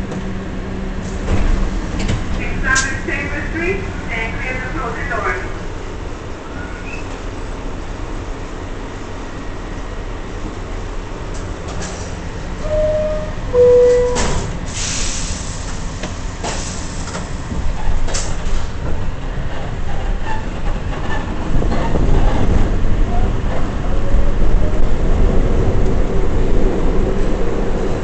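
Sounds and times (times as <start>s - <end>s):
subway car rumble: 0.0s - 28.0s
two-note door chime: 12.6s - 14.4s
doors closing hiss: 13.6s - 17.3s.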